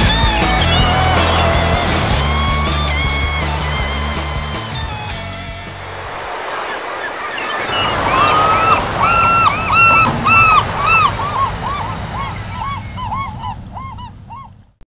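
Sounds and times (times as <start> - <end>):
flock of birds honking: 6.3 - 14.0.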